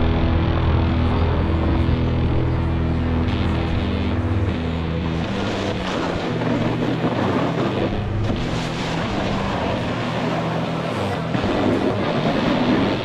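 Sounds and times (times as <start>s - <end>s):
electronic music: 0.0s - 8.6s
snowboard scraping over snow: 5.0s - 13.0s.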